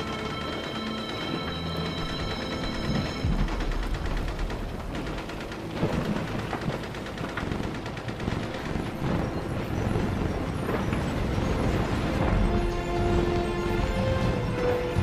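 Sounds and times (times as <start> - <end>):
held notes: 0.0 - 5.8.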